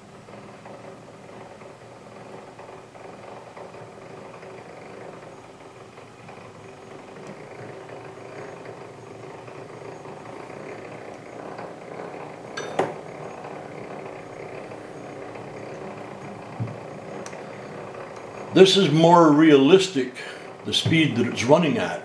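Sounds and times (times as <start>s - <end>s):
sharp metallic clink: 12.6s - 12.9s.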